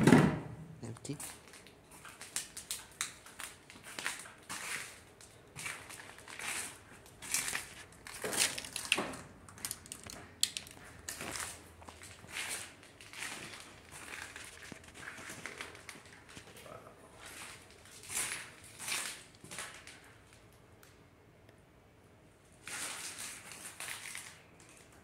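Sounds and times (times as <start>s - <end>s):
footsteps crunching on debris: 1.1s - 20.2s.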